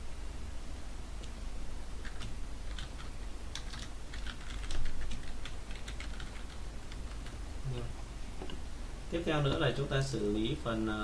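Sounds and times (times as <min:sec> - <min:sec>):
computer keyboard typing: 0:02.0 - 0:07.4.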